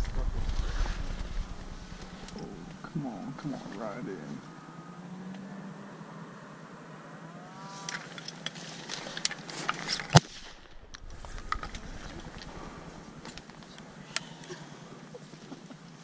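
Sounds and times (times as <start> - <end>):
gear clicking and rustling: 7.9 - 14.3.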